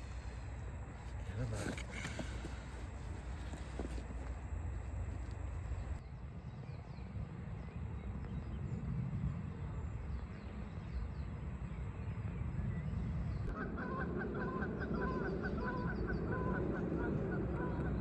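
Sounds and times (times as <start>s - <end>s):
geese honking: 13.5s - 18.0s.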